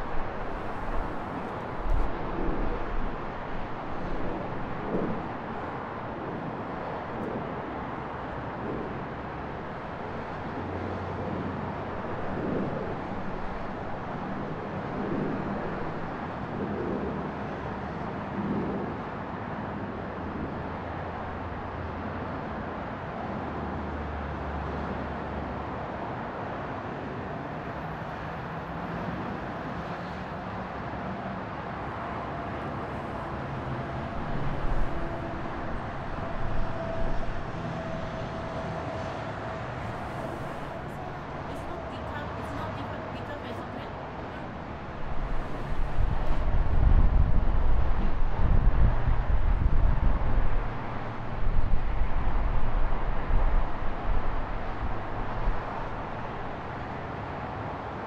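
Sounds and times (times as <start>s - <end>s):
passing cars: 0.0s - 58.0s
low vehicle hum: 31.6s - 56.5s.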